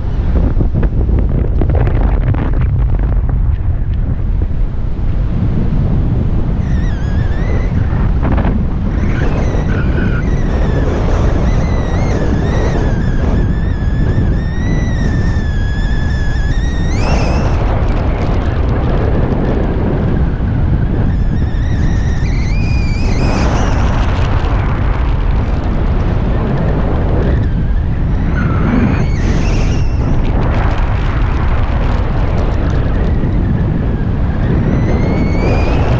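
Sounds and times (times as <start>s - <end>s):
wind buffeting microphone: 0.0s - 35.9s
wavering high whistle: 6.6s - 8.0s, 9.0s - 17.7s, 21.1s - 24.1s, 28.1s - 30.2s.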